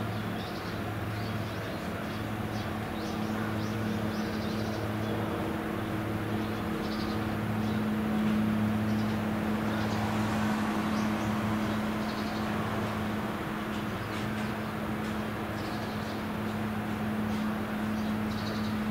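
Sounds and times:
boat diesel engine drone: 0.0s - 18.9s
small birds chirping: 0.1s - 10.1s, 17.3s - 18.9s.

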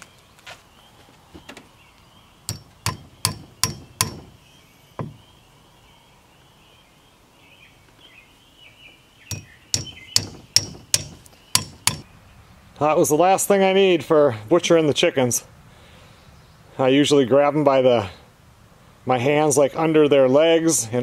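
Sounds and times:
hammer driving nails into log: 2.5s - 4.4s, 9.3s - 12.0s.

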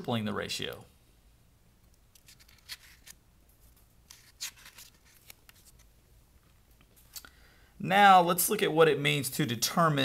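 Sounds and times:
paper rustling: 2.2s - 5.9s.

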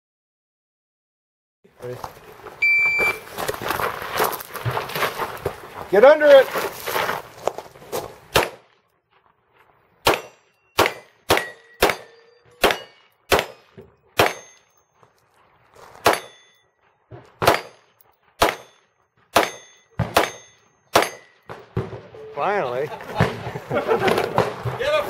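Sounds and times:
handgun shots: 8.3s - 8.6s, 10.0s - 14.6s, 16.0s - 16.4s, 17.4s - 17.8s, 18.4s - 18.8s, 19.4s - 21.3s
steel target ringing: 10.1s - 14.9s, 16.0s - 16.7s, 17.4s - 21.6s.

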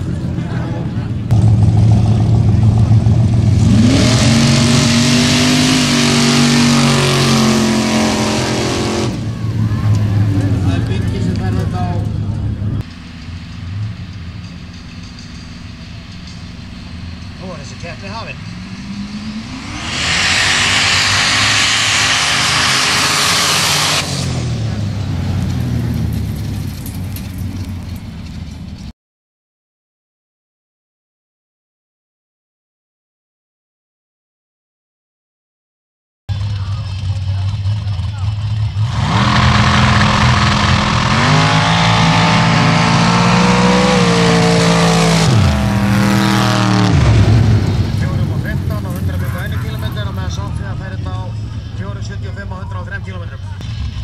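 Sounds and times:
offroad car engines at full throttle: 0.0s - 28.9s, 36.3s - 54.0s
loud rushing noise: 17.0s - 24.8s.

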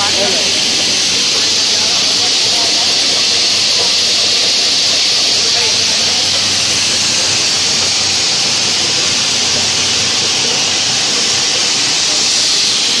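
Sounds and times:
grain mill running: 0.0s - 13.0s.

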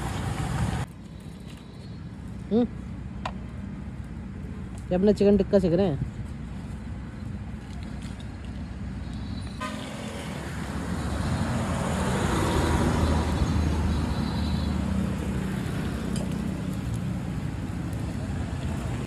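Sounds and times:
vehicle passing by: 9.6s - 19.0s.

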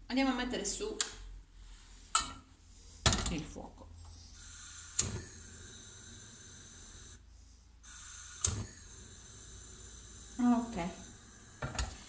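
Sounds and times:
gas hissing: 4.1s - 12.0s
gas burner igniter clicks: 5.0s - 5.2s, 8.4s - 8.7s.

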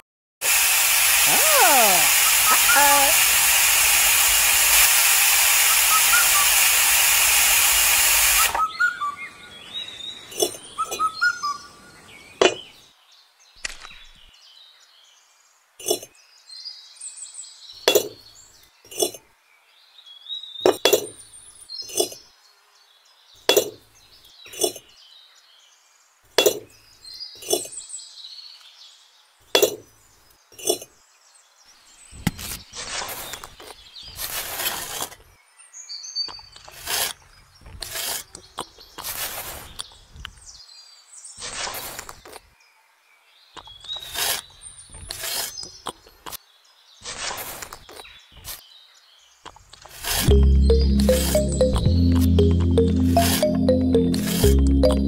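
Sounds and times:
hiss: 0.4s - 8.6s.

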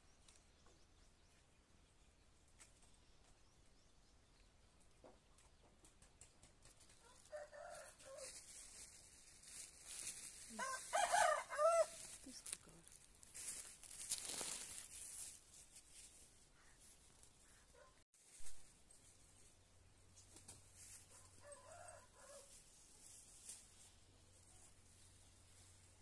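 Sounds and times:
rooster crowing: 10.6s - 12.0s, 21.1s - 22.5s.

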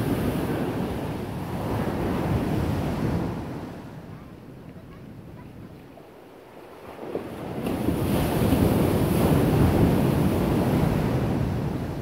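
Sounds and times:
ocean wave breaking: 0.0s - 4.0s
wind on microphone: 0.0s - 6.0s, 6.8s - 12.0s.

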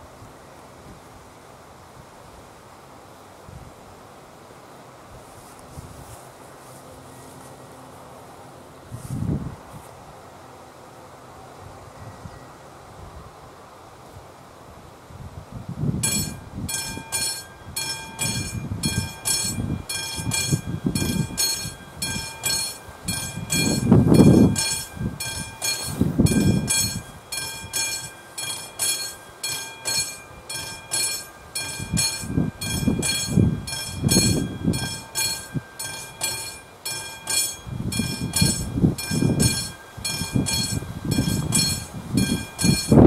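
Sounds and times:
level-crossing bell ringing: 16.0s - 43.0s.

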